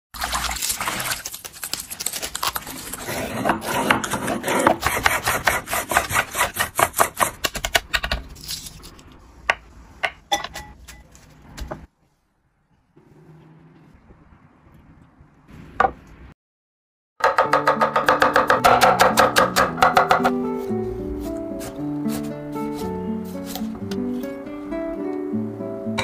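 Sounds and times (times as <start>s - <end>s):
knife chopping on wooden board: 3.4s - 8.0s, 17.2s - 20.4s.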